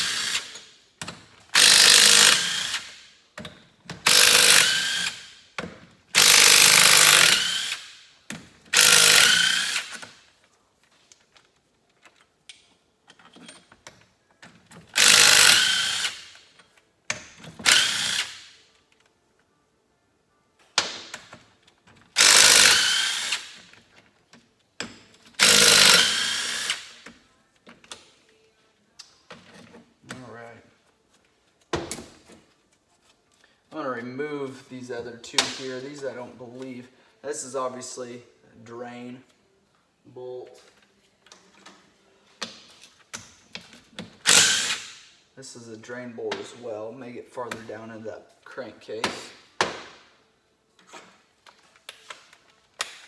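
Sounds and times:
impact driver running in bursts: 1.6s - 2.9s, 6.2s - 7.8s, 22.2s - 23.5s.

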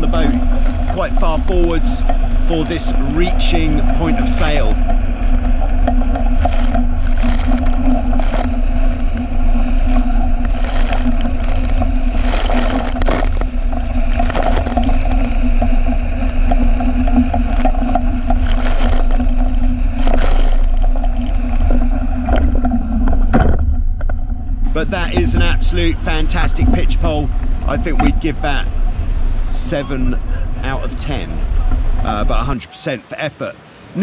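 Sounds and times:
water rushing past hulls: 0.0s - 23.4s
wind rumble on microphone: 0.0s - 32.5s
steady hum: 0.0s - 32.6s.

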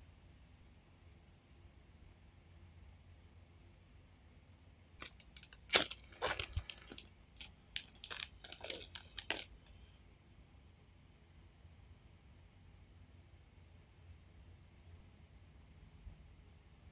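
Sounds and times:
plastic bag crinkling: 5.0s - 9.8s.

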